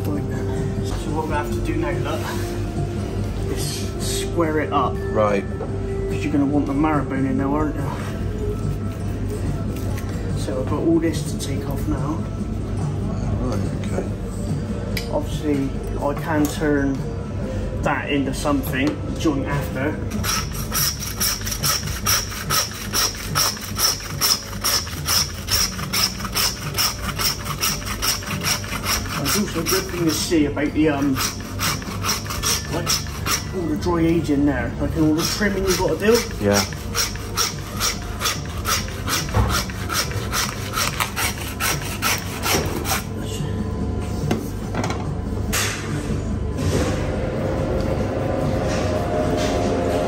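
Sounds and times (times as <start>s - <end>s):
hand saw rasping through bone: 20.1s - 33.9s, 35.0s - 43.1s.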